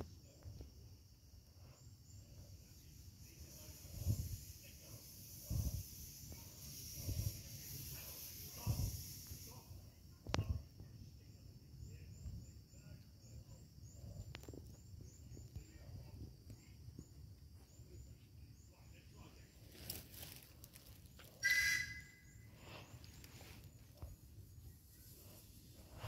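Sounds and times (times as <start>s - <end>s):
locomotive whistle blast: 21.4s - 22.3s.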